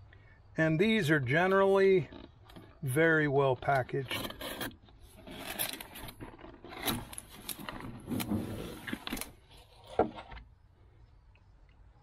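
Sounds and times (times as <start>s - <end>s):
cardboard scraping and rustling: 3.6s - 10.5s.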